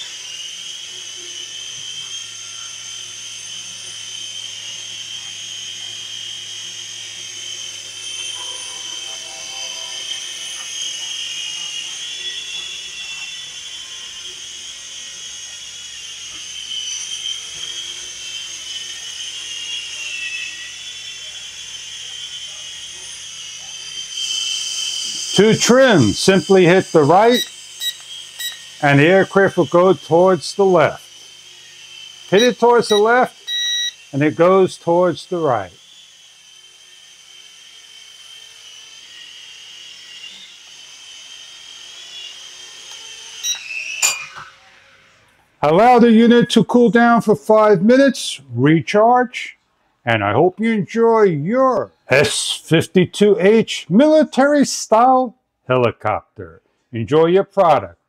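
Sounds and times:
toy helicopter rotors whining: 0:00.0 - 0:55.3.

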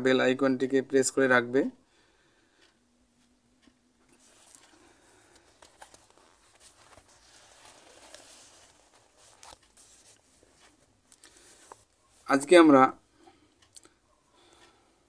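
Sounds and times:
book pages turning: 0:04.1 - 0:12.2.

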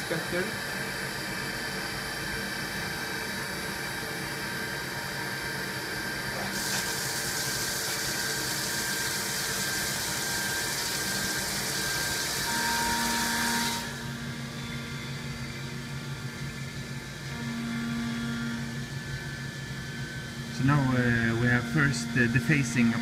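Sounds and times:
milling machine hum: 0:00.0 - 0:23.0
coolant spraying hiss: 0:06.4 - 0:11.8.

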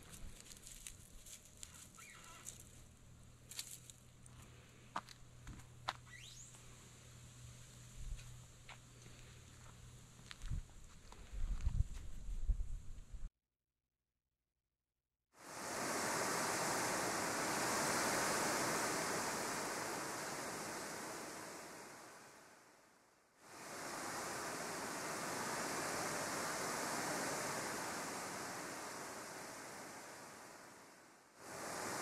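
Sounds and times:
rushing hiss: 0:15.4 - 0:22.7, 0:23.4 - 0:32.0.

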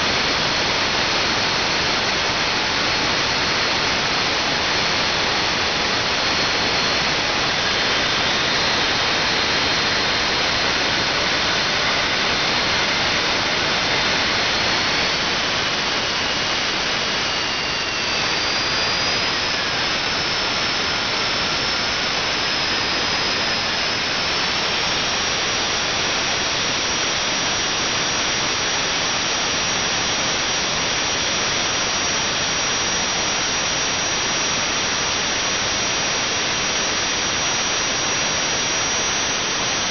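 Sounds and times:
turbine high whine: 0:00.0 - 0:39.9
jet engine roar: 0:00.2 - 0:29.2.

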